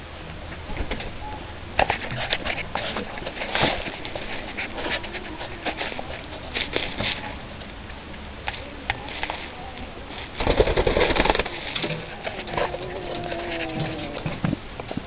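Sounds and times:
chickens scratching: 0:00.6 - 0:15.0
chickens clucking: 0:01.8 - 0:15.0
rustling flurry of wings: 0:08.6 - 0:15.0
drawn-out chicken call: 0:12.0 - 0:14.4.

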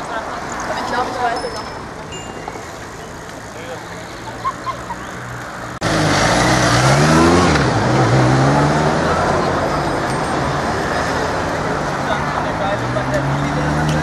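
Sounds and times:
voices: 0:00.0 - 0:05.7, 0:07.6 - 0:14.0
road noise: 0:00.0 - 0:14.0
vehicle engine revving: 0:05.7 - 0:14.0.

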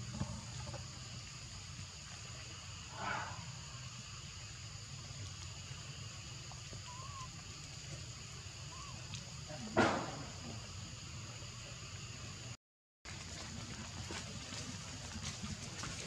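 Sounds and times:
steady outdoor hiss: 0:00.0 - 0:16.0
faint chirps: 0:06.7 - 0:07.4, 0:08.3 - 0:12.5
infant monkey shrill cries: 0:06.9 - 0:07.3.

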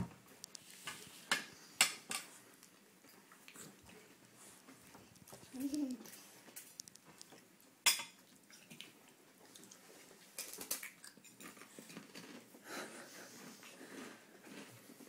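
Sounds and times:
baby wet mouth noises: 0:05.2 - 0:06.2.

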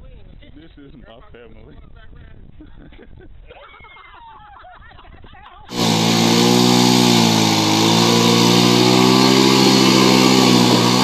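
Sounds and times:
quad bike engine running hard: 0:05.7 - 0:11.0.

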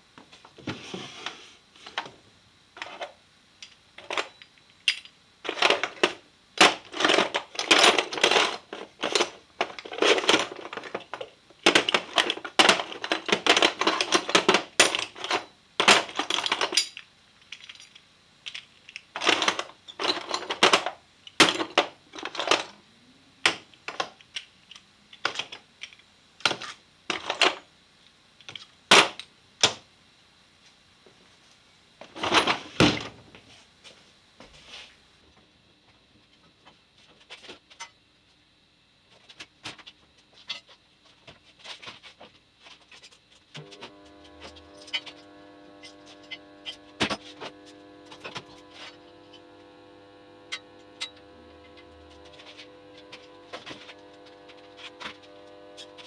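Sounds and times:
parts rattling in wooden drawer: 0:05.5 - 0:22.7.

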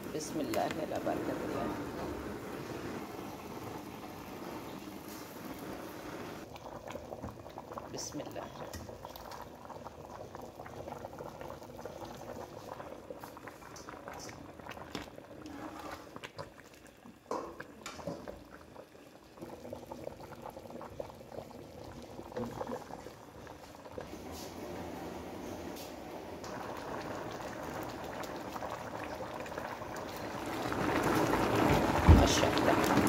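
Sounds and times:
pot bubbling at a boil: 0:00.0 - 0:33.0.

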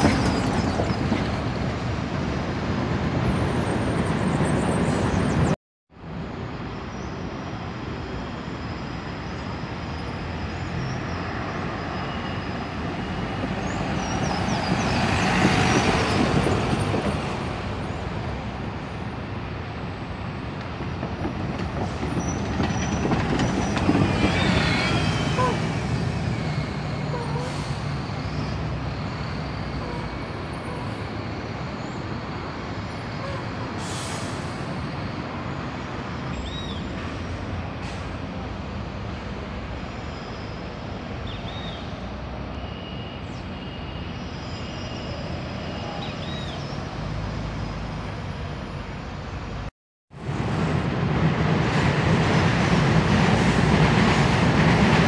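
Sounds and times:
buses rumbling and idling: 0:00.0 - 0:55.0
air brake hisses: 0:27.3 - 0:27.9, 0:33.8 - 0:34.8.

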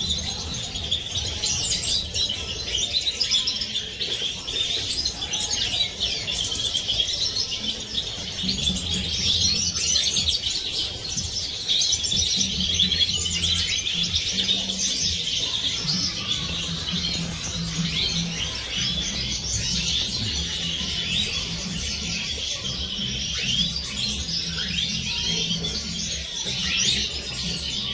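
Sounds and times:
flock of finches twittering: 0:00.0 - 0:27.9.

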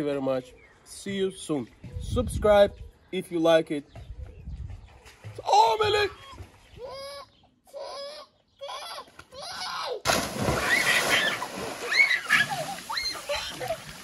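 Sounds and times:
loud splash into pool: 0:10.0 - 0:14.0
water sloshing and churning: 0:10.1 - 0:14.0.

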